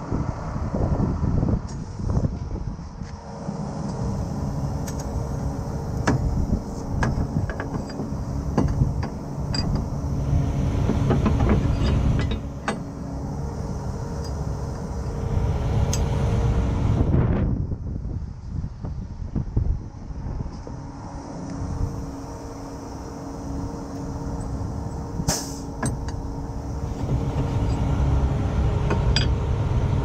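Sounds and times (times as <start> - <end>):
tow truck engine running: 0.0 - 18.2, 19.8 - 30.0
sharp metallic clicks and clanks: 10.9 - 13.0.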